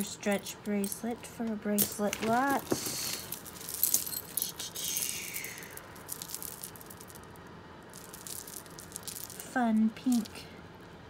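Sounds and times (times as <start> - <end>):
beads clinking and rattling: 0.0 - 10.5
rustling: 1.9 - 10.3.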